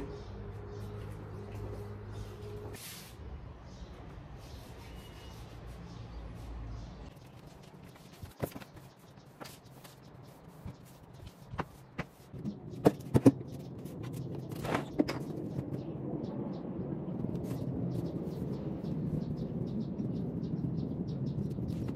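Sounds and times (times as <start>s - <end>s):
objects knocking and clattering: 12.0s - 13.6s.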